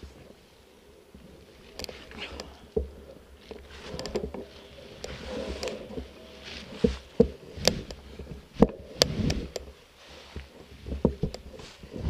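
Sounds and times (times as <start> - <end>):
bike tyres on dirt trail: 0.0 - 12.0
bike knocks and rattles: 1.7 - 9.8.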